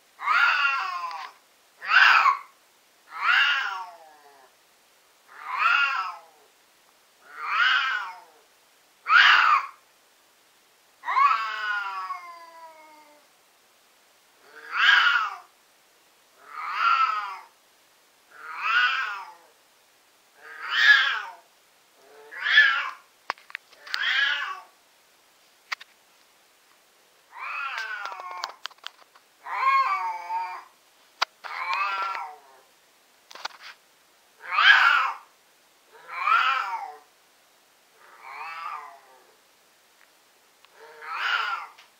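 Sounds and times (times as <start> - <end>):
cat yowling: 0.2 - 2.5, 3.1 - 4.5, 5.3 - 6.5, 7.3 - 8.4, 9.1 - 9.8, 11.0 - 13.3, 14.4 - 15.5, 16.4 - 17.5, 18.3 - 19.5, 20.4 - 23.0, 23.8 - 24.7, 27.3 - 28.6, 29.4 - 30.7, 31.5 - 32.7, 34.4 - 35.3, 35.9 - 37.1, 38.0 - 39.4, 40.8 - 41.8.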